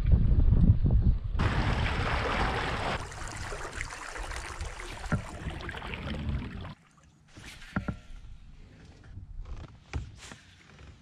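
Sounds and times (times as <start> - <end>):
water lapping against hull: 1.4 - 8.2.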